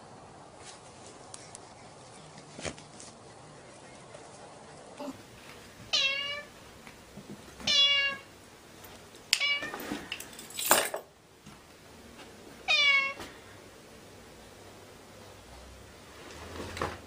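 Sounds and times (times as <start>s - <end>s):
cat meowing: 5.9s - 6.5s, 7.7s - 8.3s, 12.7s - 13.2s.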